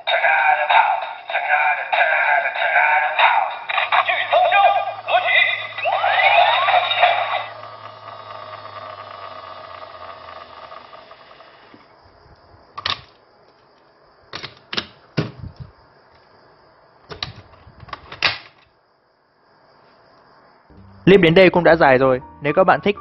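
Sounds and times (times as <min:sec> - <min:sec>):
toy electronic ringing tone: 0:00.1 - 0:11.7.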